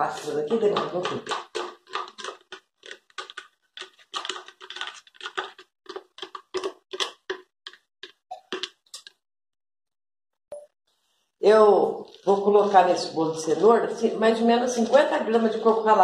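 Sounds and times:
utensil scraping plastic jar: 0.0s - 9.1s.

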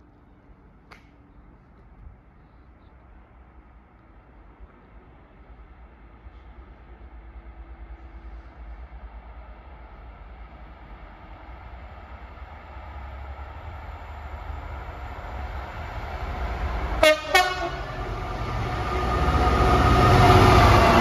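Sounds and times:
diesel locomotive engine: 0.0s - 21.0s
train wheel noise: 4.3s - 21.0s
train horn blasts: 17.0s - 18.1s.

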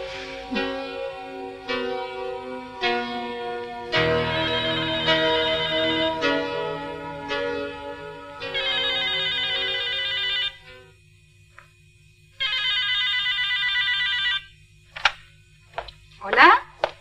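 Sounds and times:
background music: 0.0s - 10.0s
telephone ringing with warbling trill: 4.3s - 6.4s, 8.5s - 10.8s, 12.4s - 14.5s.

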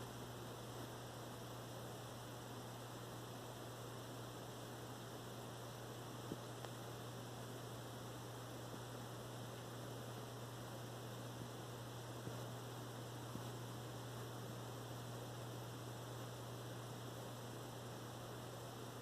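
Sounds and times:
aquarium pump humming: 0.0s - 19.0s
small click: 6.3s - 6.8s.

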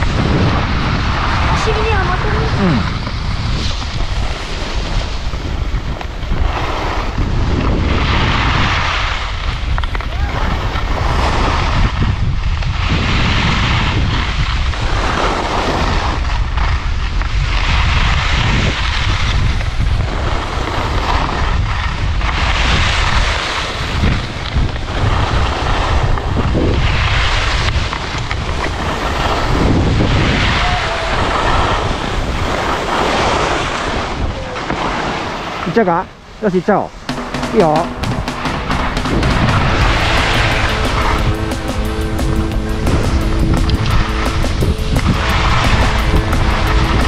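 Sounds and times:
wind buffeting microphone: 0.0s - 35.4s, 38.1s - 47.0s
skis hissing over snow: 0.0s - 35.8s.

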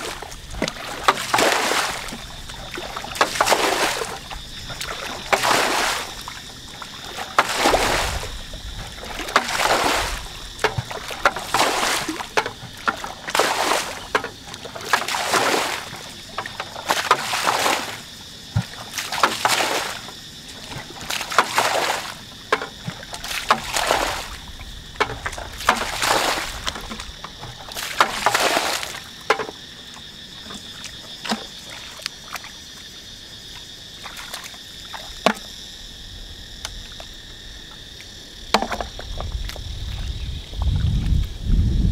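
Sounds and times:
water splashing from bucket: 0.0s - 32.6s, 33.4s - 35.6s, 38.0s - 41.3s.

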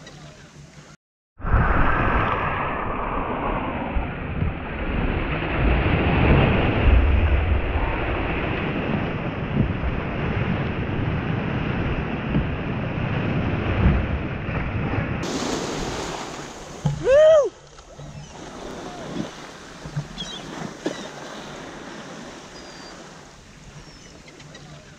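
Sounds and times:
wind buffeting microphone: 1.4s - 23.1s
water churning and splashing: 4.4s - 24.9s
whale call: 16.0s - 24.9s.

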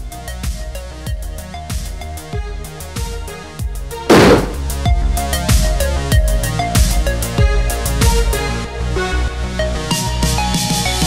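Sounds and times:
rifle shot: 4.1s - 4.6s.

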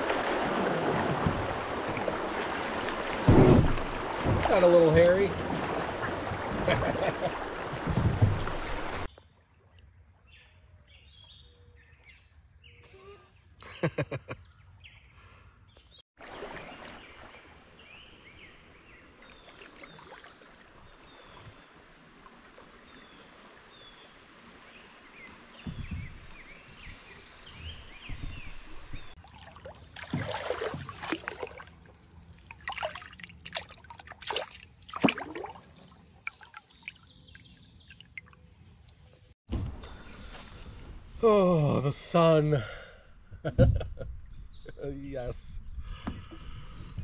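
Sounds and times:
paddle strokes splashing water: 0.0s - 9.1s, 16.2s - 39.3s
river water murmur: 0.0s - 9.7s, 16.2s - 39.4s
songbirds chirping: 4.0s - 42.5s, 44.0s - 47.0s.

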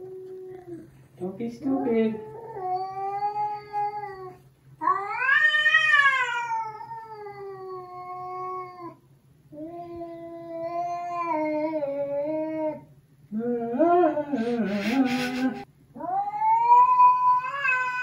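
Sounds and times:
cat yowling: 4.8s - 9.0s, 16.0s - 18.0s.

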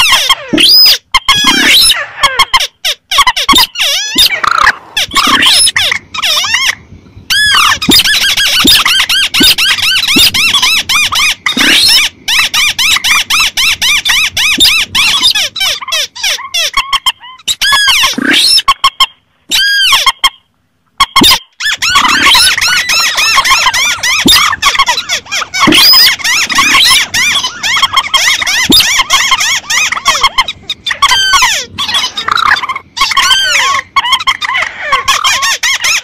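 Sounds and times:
rail bird calls squealing: 0.0s - 36.0s.

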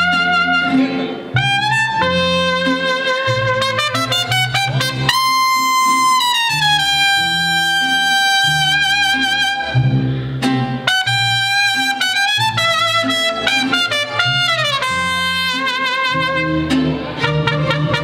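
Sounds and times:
mariachi music with trumpets: 0.0s - 18.0s.

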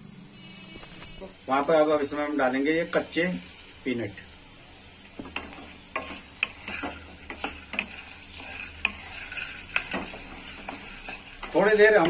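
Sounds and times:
faint sizzle of frying: 0.0s - 12.0s
spatula scraping a pan: 5.2s - 12.0s.

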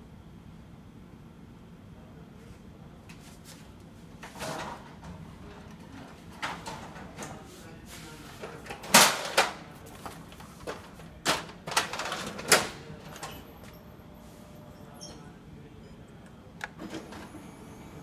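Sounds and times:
copier paper tray clacking: 8.4s - 13.4s, 16.6s - 17.4s.

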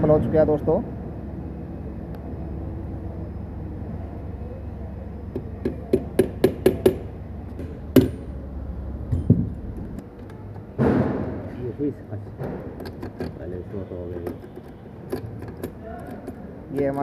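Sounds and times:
hammer tapping metal: 5.3s - 8.4s.

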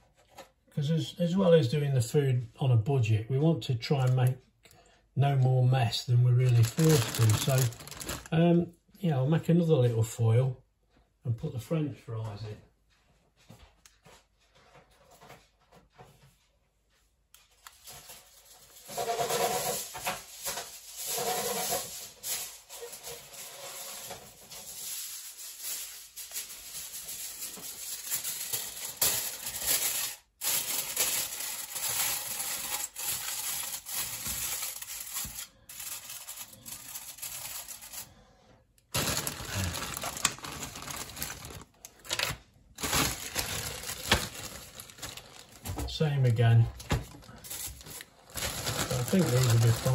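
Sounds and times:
aluminium foil crinkling: 5.9s - 8.4s, 17.5s - 38.2s, 38.9s - 45.8s, 46.8s - 49.9s
plastic bag rustling: 5.9s - 8.4s, 17.8s - 38.2s, 38.9s - 49.9s.

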